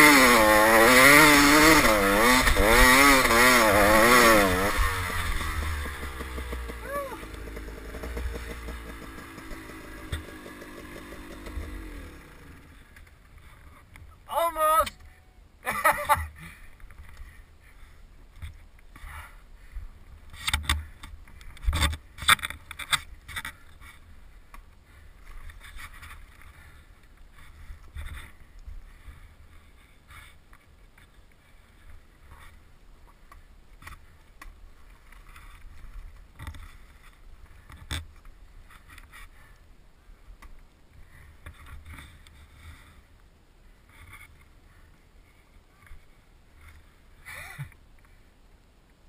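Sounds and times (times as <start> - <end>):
dirt bike knocking and scraping: 0.0 - 14.1, 20.2 - 39.6, 43.8 - 44.5.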